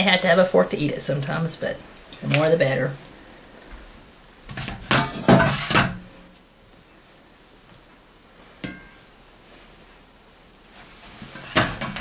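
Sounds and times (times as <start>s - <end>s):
metal utensil scraping cookware: 4.6s - 6.0s.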